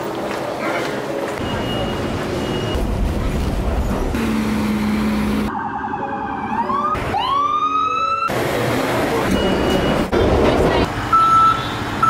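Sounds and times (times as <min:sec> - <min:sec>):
city street traffic: 0:00.0 - 0:12.0
emergency vehicle siren: 0:05.4 - 0:08.3.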